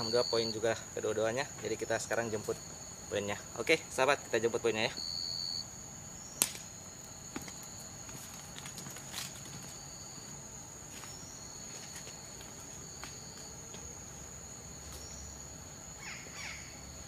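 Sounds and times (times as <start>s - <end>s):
insects droning: 0.0s - 17.0s
lower insect tone: 0.0s - 17.0s
footsteps snapping twigs and leaves: 6.4s - 6.7s, 7.3s - 9.8s.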